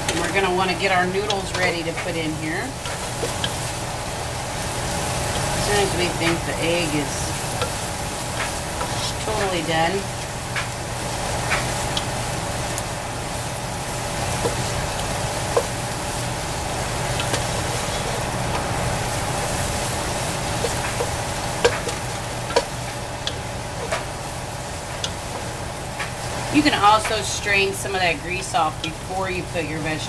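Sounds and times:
food sizzling in a pot: 0.0 - 30.0
wooden spoon scraping a pot: 4.7 - 9.7, 17.2 - 18.8.

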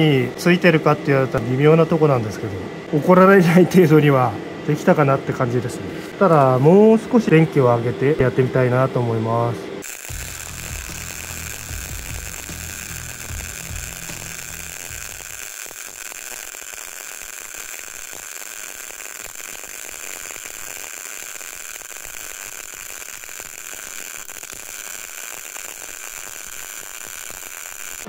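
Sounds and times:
welding arc crackling hiss: 9.8 - 28.0.

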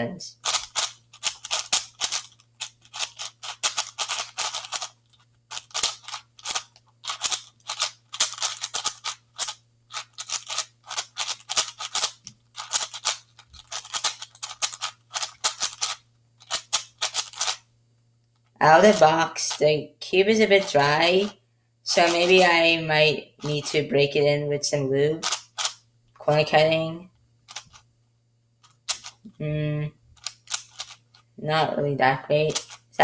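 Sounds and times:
plastic puzzle cube clicking: 0.4 - 17.6, 25.2 - 25.8, 27.5 - 27.8, 28.6 - 29.2, 30.2 - 31.0, 32.5 - 32.8.

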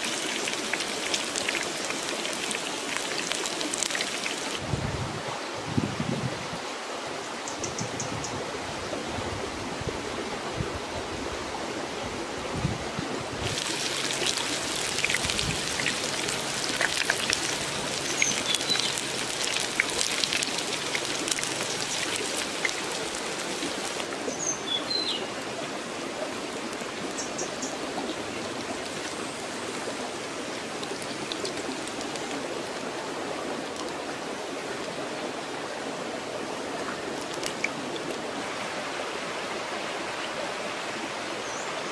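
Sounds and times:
running stream: 0.0 - 41.9
oil sizzling in a wok: 13.4 - 24.1.

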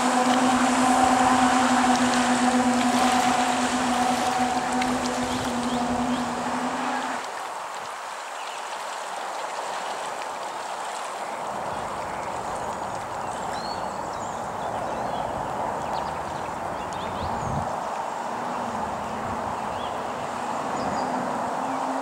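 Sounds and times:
water jet rushing hiss: 0.0 - 8.1.

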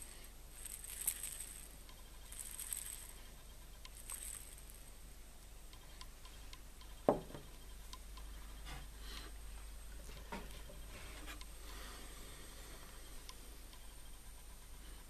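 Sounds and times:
glass flask knocking on wood: 7.1 - 7.4.

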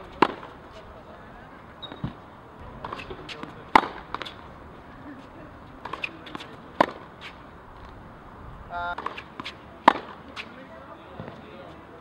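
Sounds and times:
racquet striking tennis ball: 0.0 - 0.6, 1.8 - 4.6, 5.7 - 8.0, 8.9 - 10.6
brief shoe squeak: 1.8 - 2.2, 2.9 - 3.5, 5.9 - 6.5.

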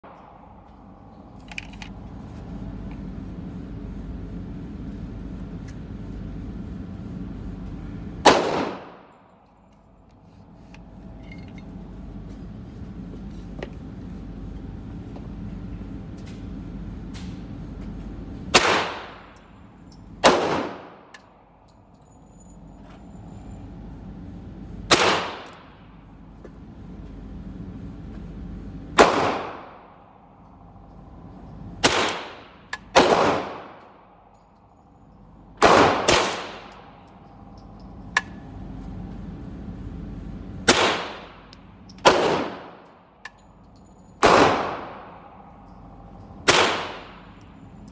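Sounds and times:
steady low hum: 0.0 - 47.9
rifle shots echoing: 8.2 - 9.1, 18.5 - 19.2, 20.2 - 21.0, 24.9 - 25.6, 29.0 - 29.9, 31.8 - 33.8, 35.6 - 36.7, 40.7 - 41.4, 42.0 - 42.8, 44.2 - 45.3, 46.5 - 47.3.

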